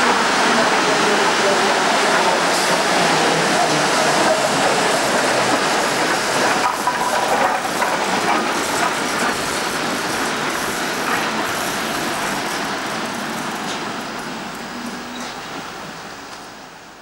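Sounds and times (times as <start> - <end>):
locomotives rolling on track: 0.0 - 16.7
wheels clattering over rail joints: 3.6 - 12.3.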